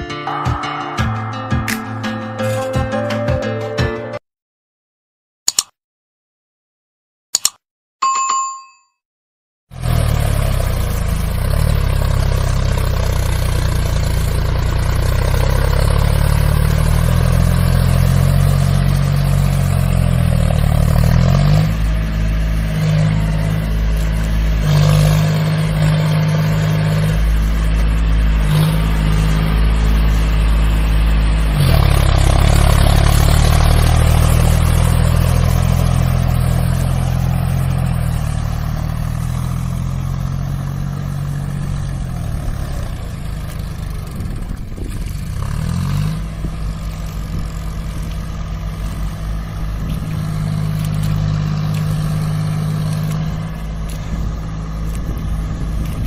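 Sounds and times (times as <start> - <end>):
tractor diesel engine revving: 9.7 - 56.0.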